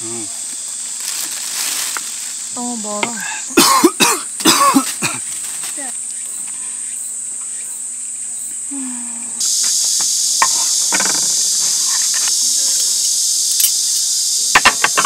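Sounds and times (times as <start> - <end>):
insects chorus: 0.0 - 15.0.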